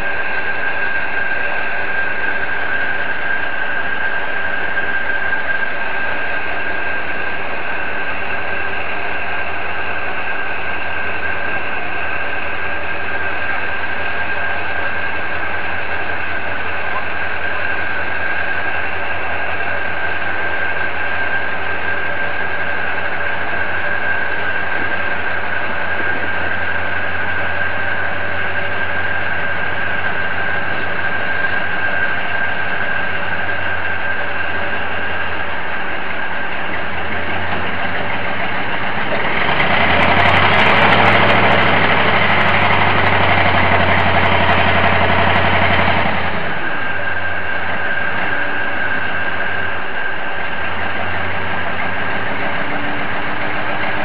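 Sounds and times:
crane engine idling and revving: 0:00.0 - 0:54.0.

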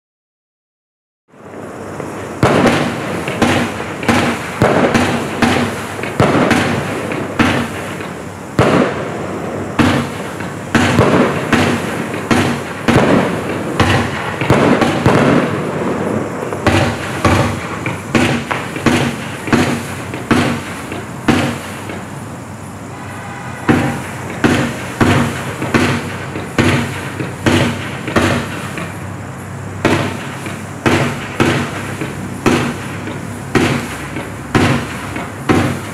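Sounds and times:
firework cake firing: 0:01.4 - 0:35.9.

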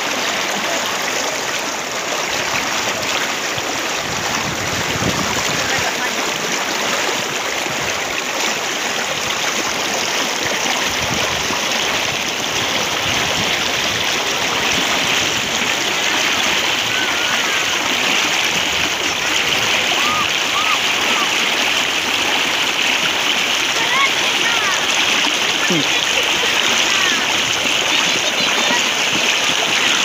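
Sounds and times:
floodwater rushing: 0:00.0 - 0:30.0.

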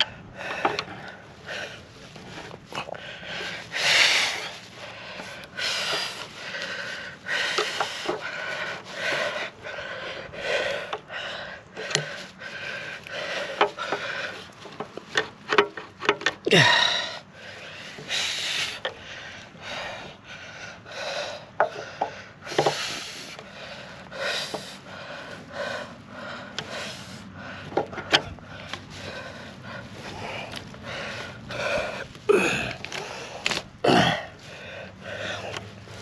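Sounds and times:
hard breathing: 0:00.0 - 0:36.0.

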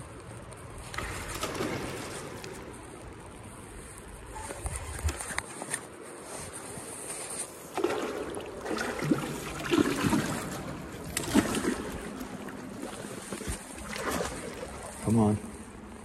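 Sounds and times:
water splashing against concrete wall: 0:00.8 - 0:03.2, 0:07.7 - 0:16.0.

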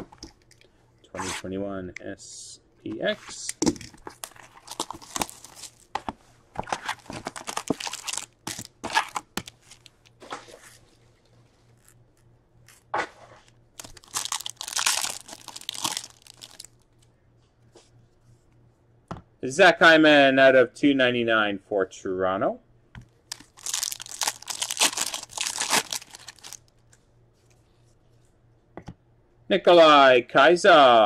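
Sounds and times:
wrappers crinkling: 0:04.0 - 0:05.9, 0:06.7 - 0:10.1, 0:13.8 - 0:16.9, 0:23.3 - 0:26.8
card packs tearing open: 0:04.1 - 0:05.9, 0:06.7 - 0:10.1, 0:13.8 - 0:16.7, 0:23.3 - 0:26.7.

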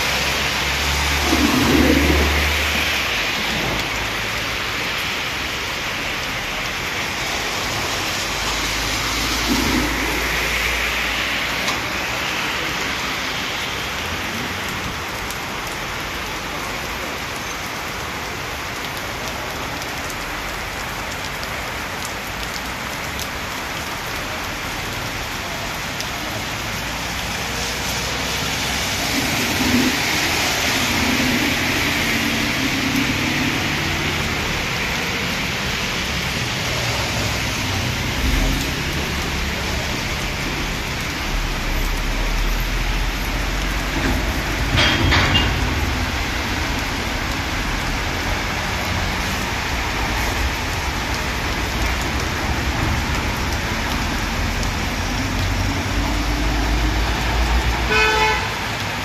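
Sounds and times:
vehicle engine: 0:00.0 - 0:04.6
tyres swishing through water: 0:00.0 - 0:13.8, 0:24.9 - 0:59.0
heavy rain hitting water: 0:00.0 - 0:59.0.

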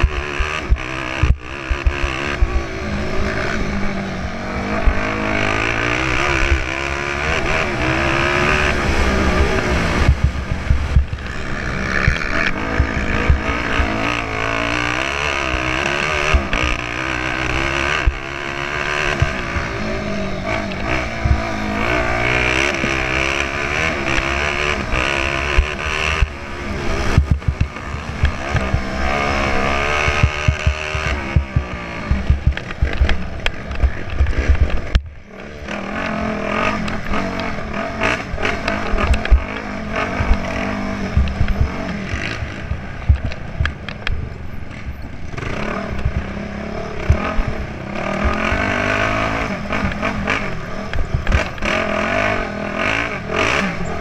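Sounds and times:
motorcycle engine revving: 0:00.0 - 0:54.0
bike knocks and rattles: 0:27.1 - 0:29.0, 0:30.0 - 0:35.2, 0:38.0 - 0:45.1.

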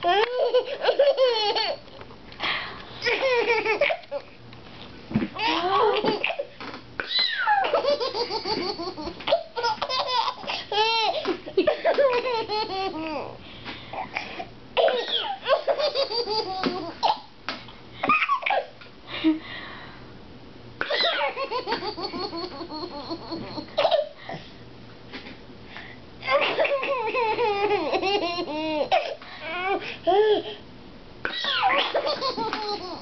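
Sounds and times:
baby laughing: 0:00.0 - 0:01.8, 0:03.0 - 0:04.3, 0:05.4 - 0:13.3, 0:14.8 - 0:17.3, 0:20.8 - 0:24.1, 0:26.2 - 0:30.5, 0:31.3 - 0:33.0.

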